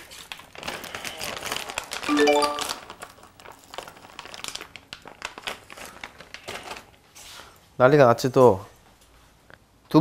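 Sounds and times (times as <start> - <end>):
plastic packet crinkling: 0.2 - 7.0
rising xylophone-like notes: 2.1 - 2.8.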